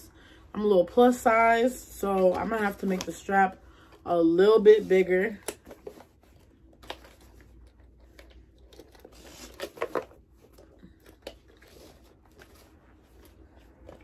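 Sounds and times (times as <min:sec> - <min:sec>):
fabric strap rustling and scraping: 0:11.4 - 0:14.0.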